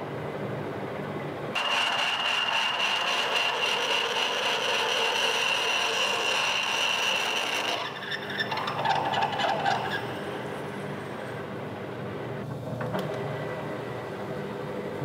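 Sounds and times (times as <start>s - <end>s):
drill cutting cast iron: 1.6s - 10.1s
lathe drill whine: 1.6s - 10.8s.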